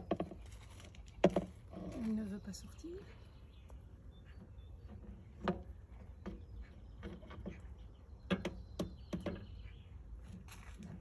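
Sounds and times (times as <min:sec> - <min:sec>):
wooden pole knocking in engine bay: 0:08.3 - 0:09.5.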